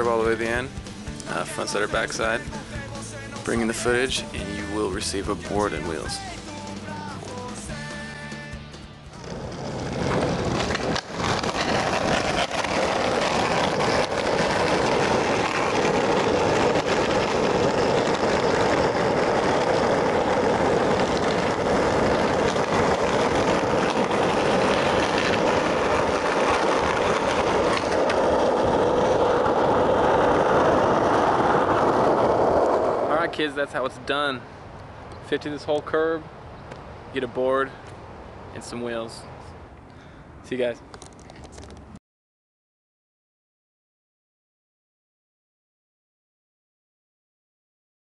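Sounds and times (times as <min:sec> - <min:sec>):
skateboard wheels rolling on asphalt: 0:00.0 - 0:42.0
skateboard grinding on concrete curb: 0:09.2 - 0:33.8.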